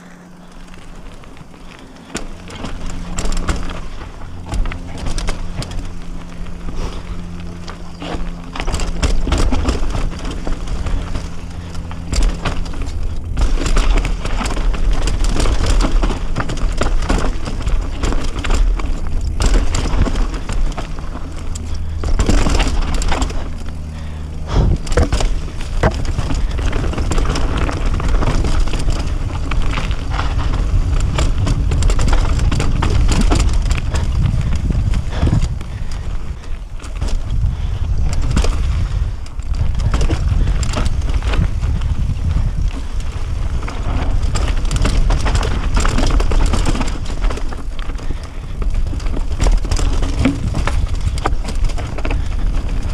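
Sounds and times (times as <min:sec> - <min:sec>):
bike clattering over rough trail: 0:00.0 - 0:52.9
wind on microphone: 0:24.4 - 0:47.3.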